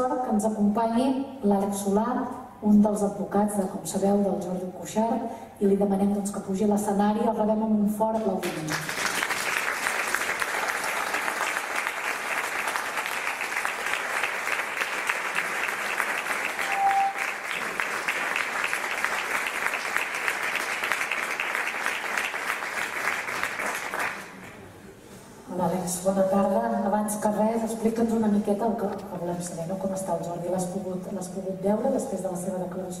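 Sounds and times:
audience applauding: 8.5 - 24.6.

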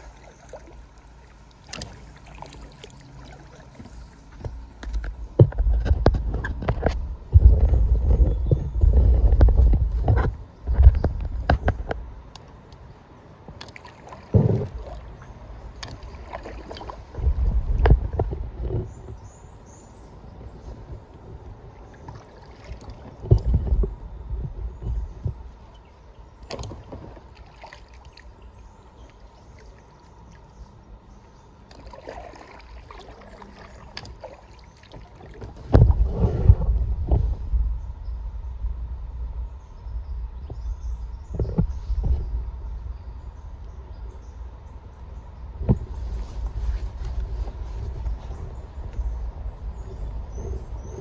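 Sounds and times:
paddle splashing water: 0.0 - 11.9, 13.4 - 37.8, 45.0 - 50.2
paddle knocks and clicks: 3.7 - 12.8, 15.7 - 19.2, 22.0 - 28.3, 31.7 - 37.7, 40.4 - 42.5, 45.6 - 49.0
low rumble: 16.9 - 21.8, 35.6 - 51.0
paddle knocking on raft: 22.1 - 25.5.

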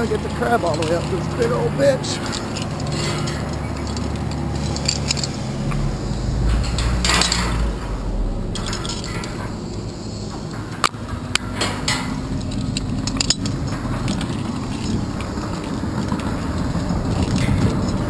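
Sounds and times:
climbing hardware clinking on metal: 0.0 - 5.8
wind rumble on microphone: 0.0 - 18.0.

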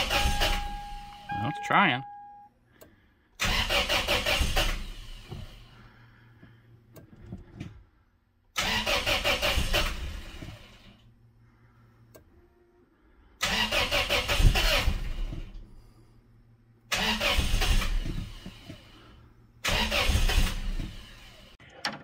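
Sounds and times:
starter cranking engine: 3.4 - 5.4, 8.6 - 10.4, 13.4 - 15.5, 16.9 - 18.7, 19.6 - 21.4.

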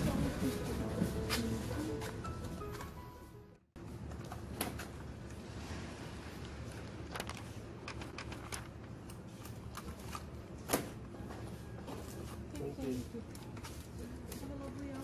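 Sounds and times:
low store hum: 0.0 - 15.0
groceries clicking and rustling: 6.6 - 15.0.

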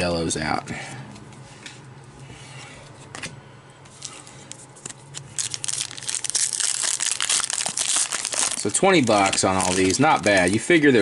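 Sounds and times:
foil wrapper crinkling: 4.0 - 11.0.

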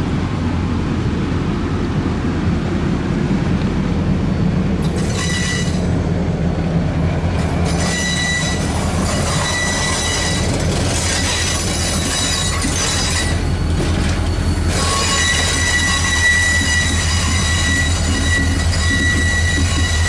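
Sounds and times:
train wheels rumbling on rails: 0.0 - 20.0
high wheel squeal: 4.8 - 6.0, 7.5 - 20.0.

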